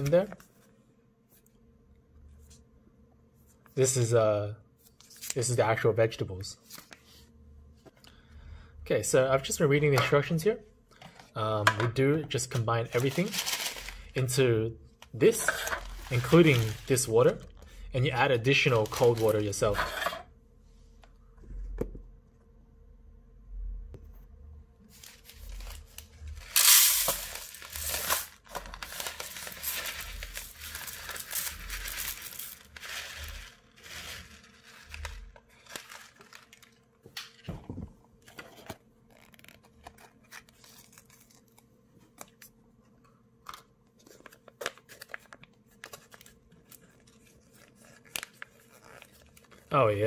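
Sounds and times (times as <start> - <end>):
packaging crinkling and rustling: 12.5 - 14.3, 15.0 - 17.6, 18.4 - 19.8, 24.9 - 37.5, 43.5 - 50.0
plastic packet ripping open: 12.9 - 14.1, 15.3 - 17.5, 18.6 - 19.8, 24.9 - 36.8, 44.2 - 49.8
rice pouring into foil tray: 13.0 - 14.1, 15.3 - 17.1, 24.9 - 36.7.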